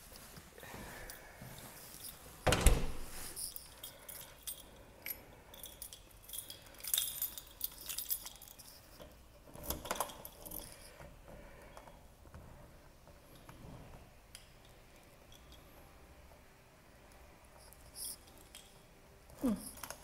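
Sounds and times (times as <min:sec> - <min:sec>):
keys jangling on keyring: 0:01.9 - 0:11.0, 0:17.6 - 0:20.0.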